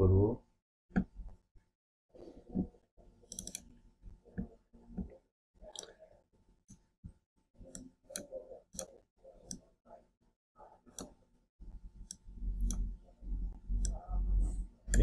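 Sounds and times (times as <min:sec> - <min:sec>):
computer mouse clicking: 0:03.3 - 0:03.7, 0:05.6 - 0:06.0, 0:07.7 - 0:09.6, 0:10.9 - 0:11.2, 0:12.0 - 0:12.9.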